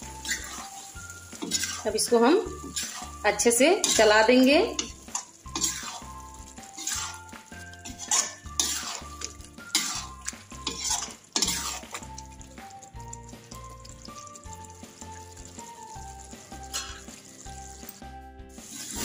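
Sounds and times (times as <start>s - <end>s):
metal spatula scraping a pan: 0.0s - 12.4s, 16.5s - 17.9s, 18.6s - 19.0s
light sizzle of frying: 0.0s - 19.0s.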